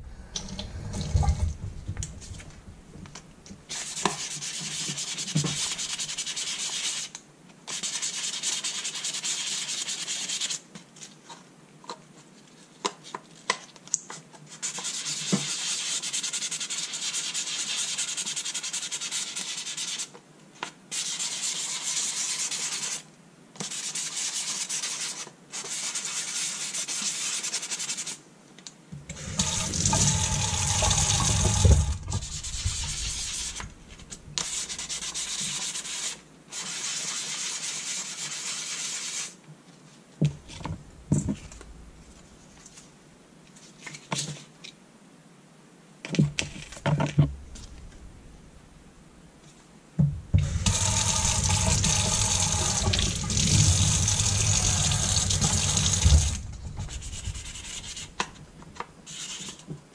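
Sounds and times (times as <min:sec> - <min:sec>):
wet sanding scratchy hiss: 0:29.1 - 0:39.4, 0:50.4 - 0:58.4.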